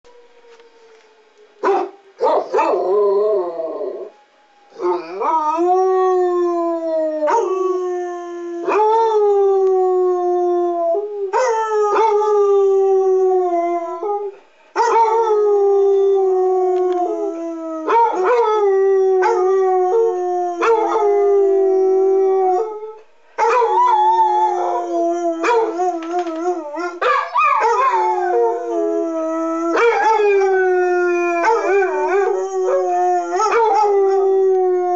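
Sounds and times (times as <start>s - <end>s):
warning siren: 0.0s - 1.6s
dogs howling: 0.1s - 34.9s.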